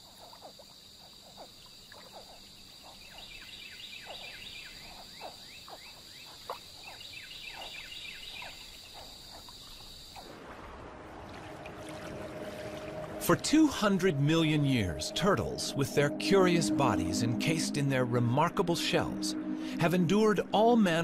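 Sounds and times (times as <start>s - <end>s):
high insect trill: 0.0s - 10.4s
frogs chirping: 0.0s - 10.7s, 11.9s - 21.0s.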